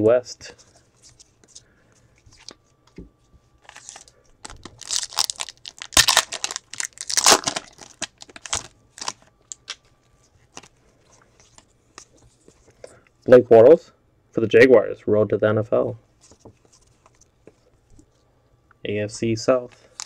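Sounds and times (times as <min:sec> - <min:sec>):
foil wrapper crinkling: 0:03.6 - 0:09.8.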